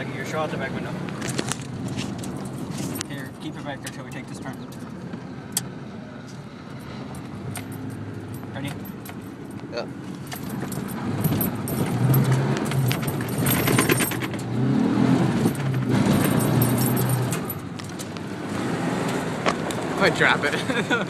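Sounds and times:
rattling and jangling in cab: 0.1 - 5.0, 6.2 - 18.2
truck engine revving: 10.4 - 21.0.

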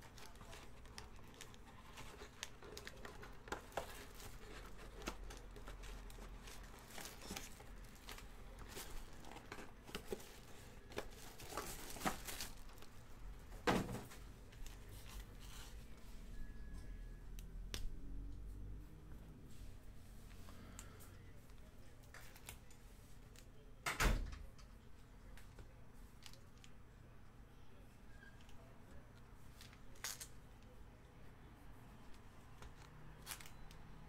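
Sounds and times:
foil packs rustling and crinkling: 0.0 - 13.0.

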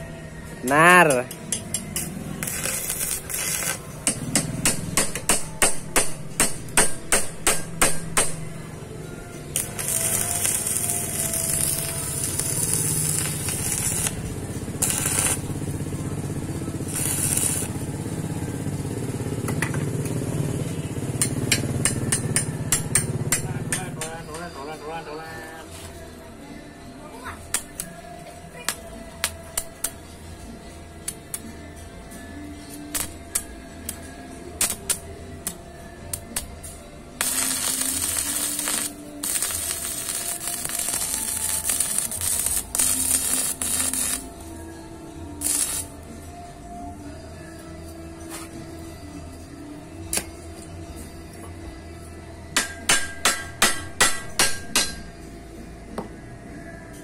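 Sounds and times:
electric arc welding crackle: 2.0 - 4.1, 9.6 - 15.9, 16.7 - 17.8, 37.2 - 44.3, 45.4 - 46.0
small petrol engine running: 9.5 - 23.3.

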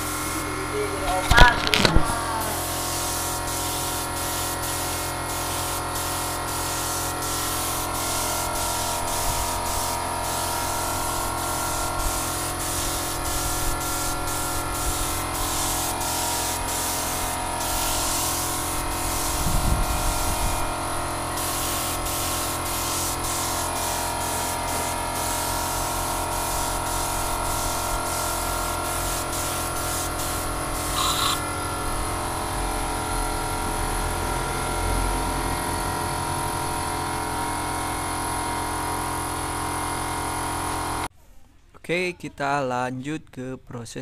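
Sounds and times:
paint spray gun hissing: 0.0 - 32.3.

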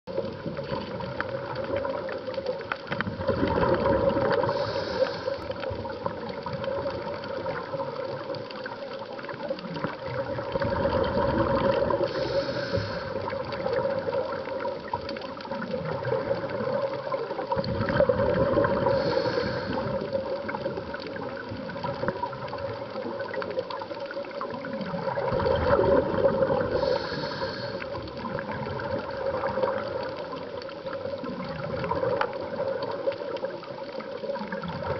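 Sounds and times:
exhaled bubbles gushing: 0.1 - 34.9
diver inhaling through regulator: 4.2 - 5.6, 11.9 - 13.4, 18.7 - 20.2, 26.6 - 28.2.

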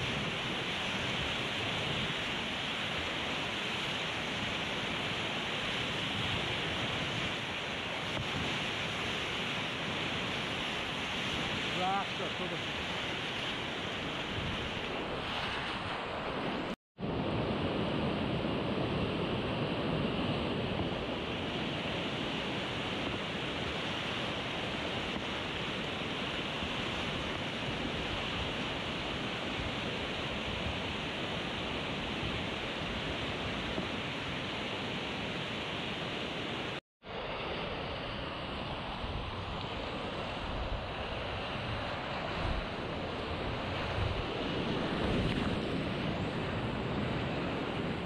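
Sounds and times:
whitewater rapids rushing: 0.0 - 13.6.

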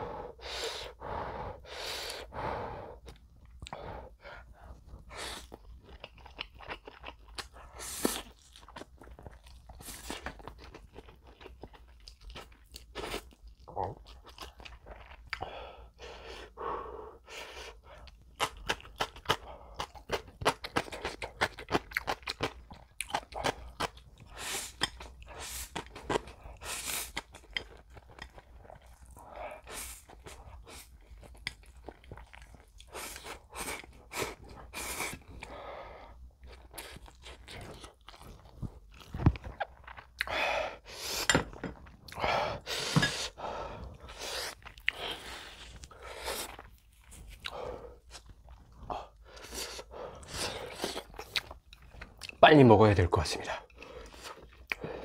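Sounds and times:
breaths: 0.0 - 5.5, 15.3 - 18.1, 35.4 - 36.3, 40.2 - 41.3, 42.2 - 46.5, 47.4 - 48.1, 48.8 - 50.8, 53.7 - 55.0
slurping and chewing noodles: 1.6 - 52.4, 53.6 - 55.0.

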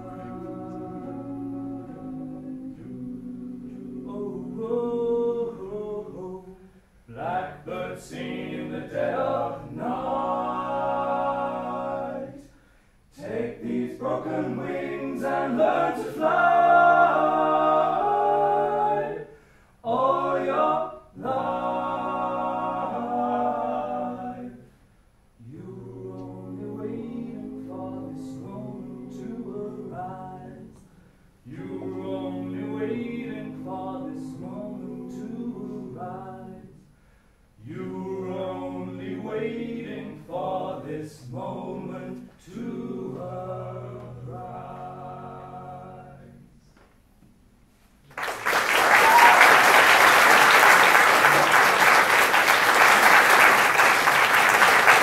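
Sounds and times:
group singing in harmony: 0.0 - 24.8, 25.4 - 37.0, 37.6 - 46.6, 48.6 - 55.0.

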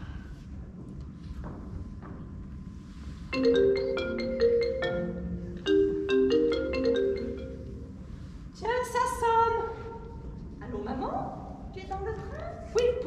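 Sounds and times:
marimba ringtone melody: 3.3 - 8.3.

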